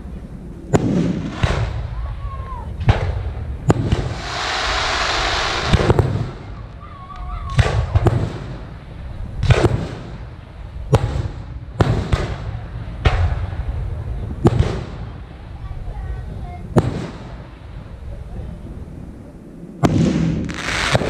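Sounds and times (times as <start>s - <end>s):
firework rushing hiss: 0.6s - 19.1s, 19.7s - 21.0s
firework bangs: 0.7s - 2.2s, 2.8s - 15.2s, 16.3s - 17.6s, 19.8s - 21.0s.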